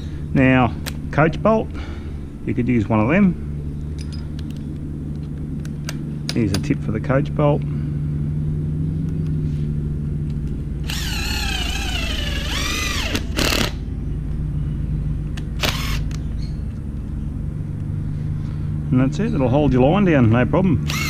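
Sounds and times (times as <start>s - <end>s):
steady low rumble: 0.0s - 21.0s
impact driver whining: 10.8s - 13.8s, 15.5s - 16.2s.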